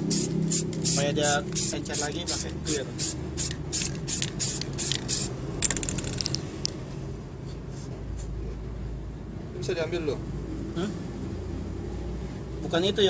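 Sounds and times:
spray can hissing: 0:00.0 - 0:05.3
steady low hum: 0:00.0 - 0:05.6.

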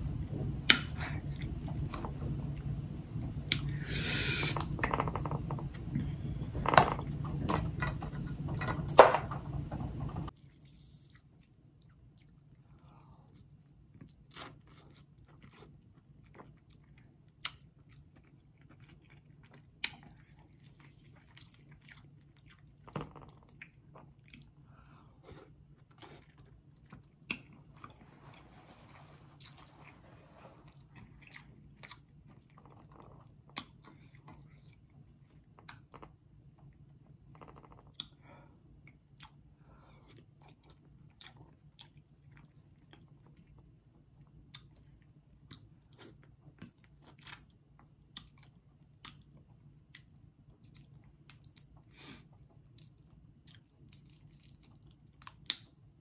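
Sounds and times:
background hum: 0:00.0 - 0:56.0
wet chewing and smacking: 0:10.3 - 0:28.1, 0:30.6 - 0:38.2, 0:38.8 - 0:55.8.

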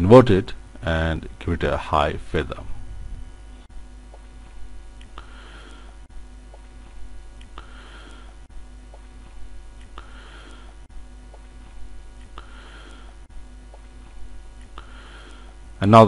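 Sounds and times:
low electrical hum and hiss: 0:00.0 - 0:16.0.

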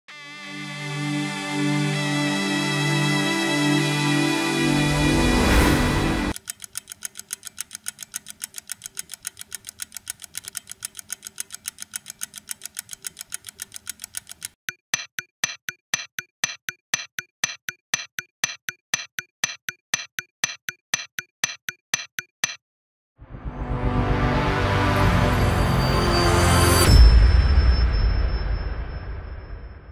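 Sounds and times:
rapid mechanical clicking: 0:06.3 - 0:22.6
sharp ringing clicks: 0:06.3 - 0:22.6.

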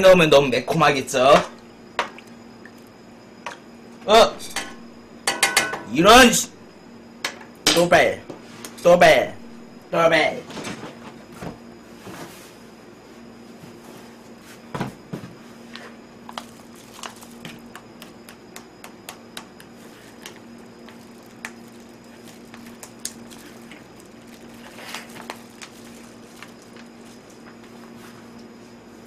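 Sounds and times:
steady low hum: 0:00.0 - 0:29.0
plastic gloves crinkling: 0:16.2 - 0:18.2, 0:19.7 - 0:28.0.

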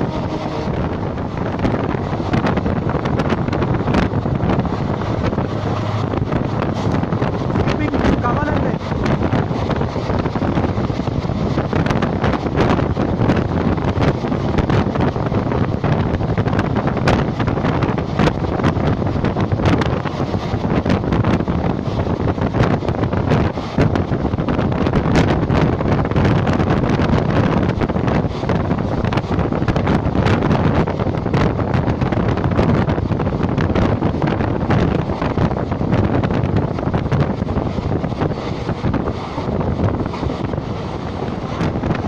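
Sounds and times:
train rumbling: 0:00.0 - 0:42.0
wind buffeting microphone: 0:00.0 - 0:42.0.

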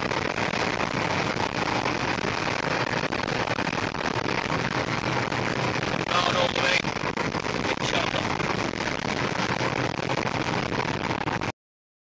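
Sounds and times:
road and wind noise inside vehicle: 0:00.0 - 0:11.5
rough crackle: 0:00.0 - 0:11.5.

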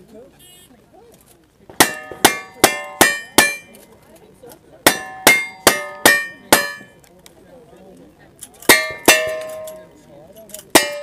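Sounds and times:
steel targets clanging: 0:01.8 - 0:03.8, 0:04.9 - 0:07.0, 0:08.7 - 0:09.9, 0:10.8 - 0:11.0.

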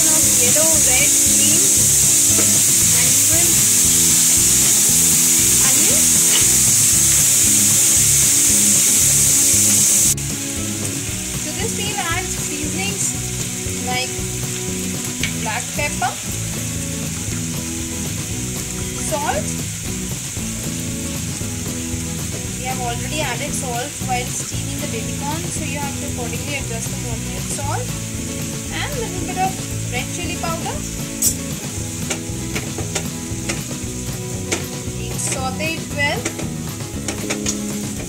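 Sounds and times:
vegetables sizzling in hot oil: 0:00.0 - 0:38.0.

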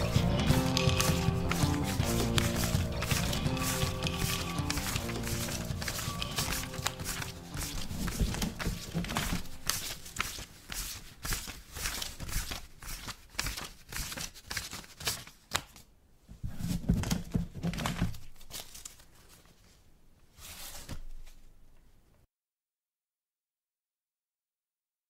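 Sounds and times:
crackling and clicking: 0:00.0 - 0:10.4.

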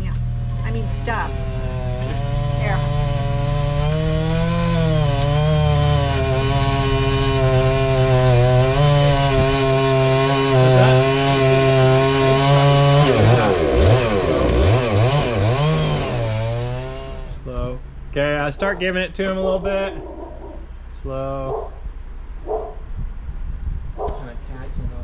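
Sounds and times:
chainsaw cutting tree: 0:00.2 - 0:17.4.

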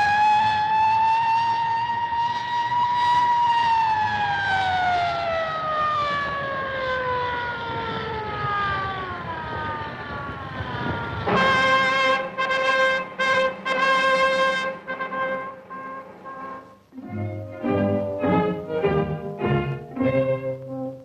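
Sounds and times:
ship's siren long tone: 0:00.0 - 0:21.0
brass music: 0:11.3 - 0:21.0.

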